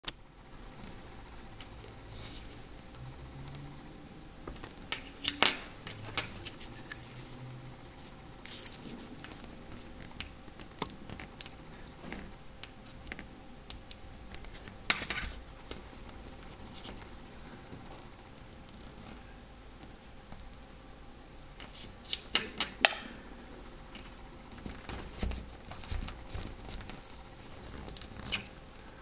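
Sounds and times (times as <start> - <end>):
key scraping on metal bracelet: 5.2 - 7.4, 8.4 - 9.5, 14.5 - 15.4.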